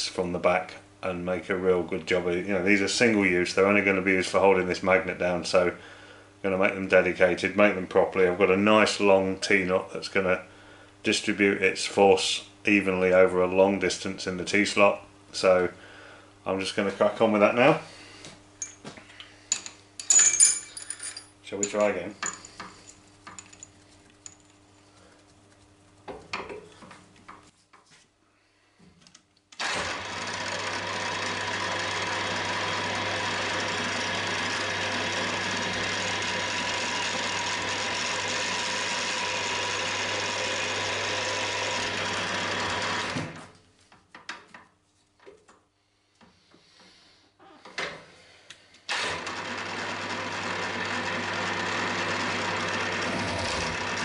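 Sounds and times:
milling machine spindle running: 29.6s - 43.2s, 49.2s - 54.0s.

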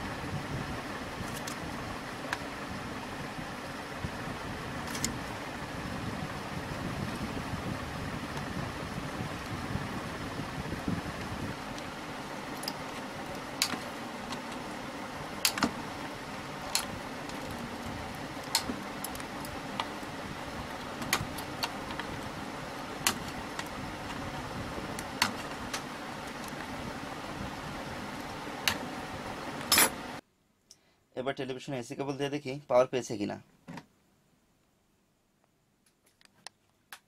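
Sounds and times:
background hiss: 0.0s - 37.0s.

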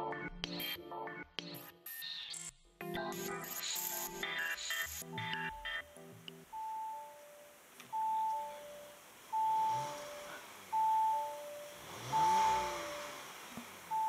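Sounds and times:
two-note warning chime: 5.0s - 13.3s
car engine revving briefly: 9.6s - 10.5s, 11.8s - 13.9s.

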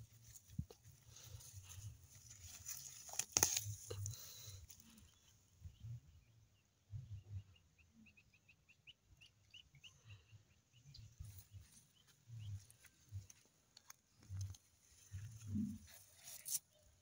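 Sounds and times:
hand rustling through foliage: 0.0s - 4.8s
bird chirping: 4.8s - 13.4s.

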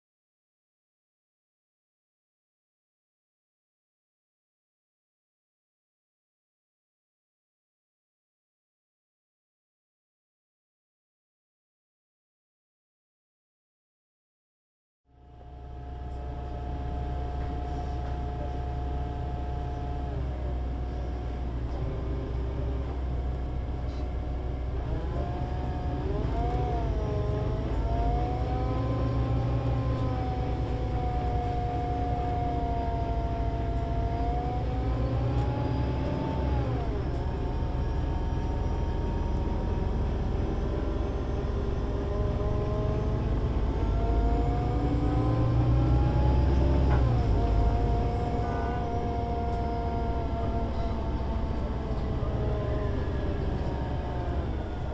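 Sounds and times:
bus engine rumble: 15.1s - 54.9s.

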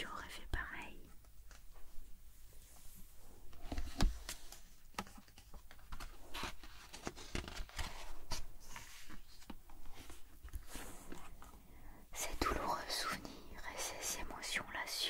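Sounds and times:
paper page rustling: 3.6s - 11.4s.

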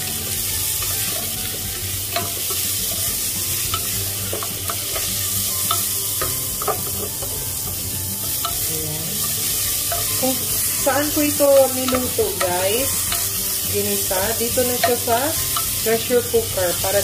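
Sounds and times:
food sizzling in oil: 0.0s - 17.0s
spatula tapping and scraping pot: 0.8s - 13.7s, 14.5s - 15.8s.

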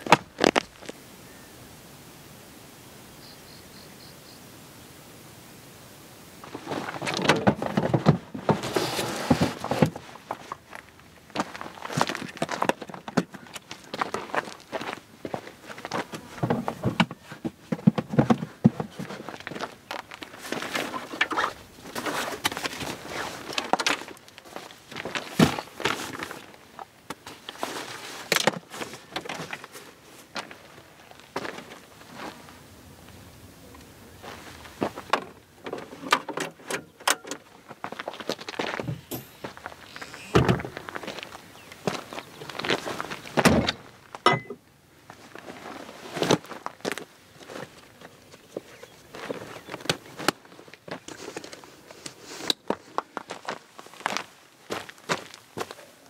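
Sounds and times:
faint high chirps: 1.1s - 5.1s
bags and fabric rustling: 6.4s - 13.1s, 18.5s - 32.6s
plastic tote knocking and scraping: 6.6s - 10.0s.

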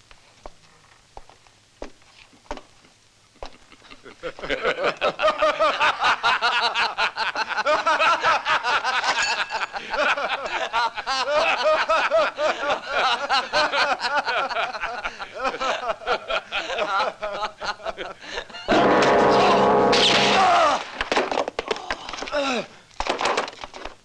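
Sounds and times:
men laughing: 3.4s - 18.8s.

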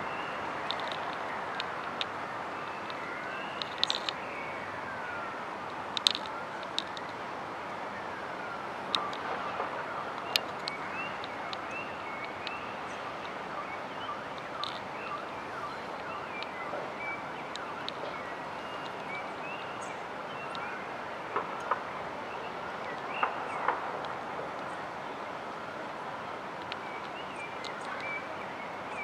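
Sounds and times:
small birds chirping: 0.0s - 4.8s, 9.0s - 24.8s, 26.5s - 29.0s
city traffic hum: 0.0s - 29.0s.

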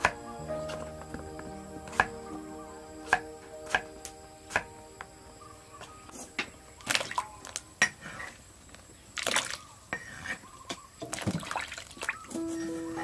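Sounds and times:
background music: 0.0s - 7.8s, 12.3s - 13.0s
gourd pieces splashing into water: 9.2s - 9.7s, 11.0s - 12.3s.

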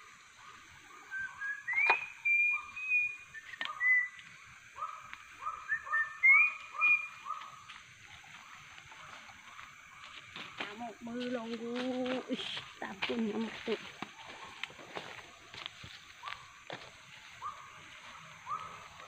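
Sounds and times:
rising held whistles: 1.0s - 4.2s, 5.6s - 7.2s.

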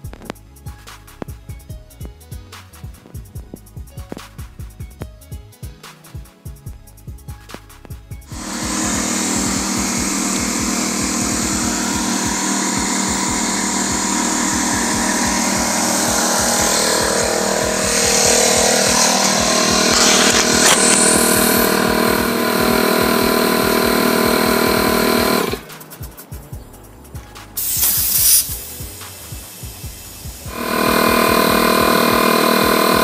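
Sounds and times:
air compressor running: 8.3s - 25.8s, 27.6s - 33.0s.

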